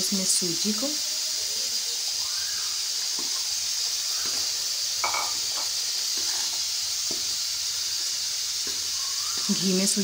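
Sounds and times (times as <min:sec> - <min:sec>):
semolina sizzling in oil: 0:00.0 - 0:10.0
metal spoon scraping pan: 0:05.0 - 0:06.7.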